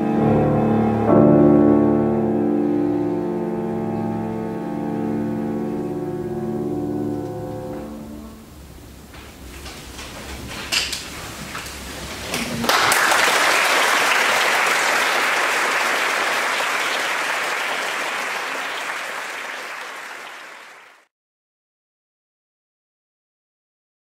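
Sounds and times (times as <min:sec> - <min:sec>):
audience applauding: 0:12.3 - 0:21.1.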